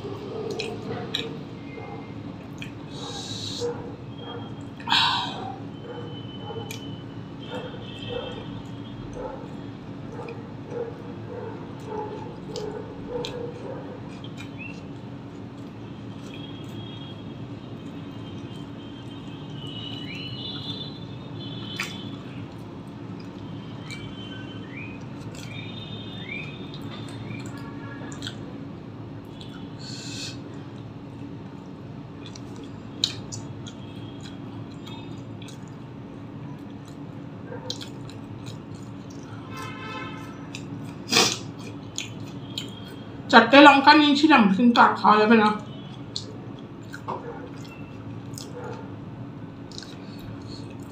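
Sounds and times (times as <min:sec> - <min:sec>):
steady background hum: 0:00.0 - 0:50.9
person chewing food: 0:00.1 - 0:17.0, 0:21.6 - 0:24.3, 0:25.0 - 0:28.6, 0:29.2 - 0:43.0, 0:45.9 - 0:49.0, 0:49.6 - 0:50.9
mouth and finger clicks: 0:21.8 - 0:22.0, 0:32.2 - 0:35.8, 0:45.9 - 0:48.6, 0:49.7 - 0:50.9.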